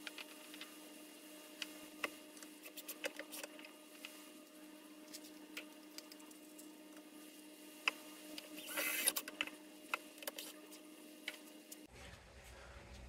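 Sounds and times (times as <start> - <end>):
faint low hum: 10.5 - 13.0.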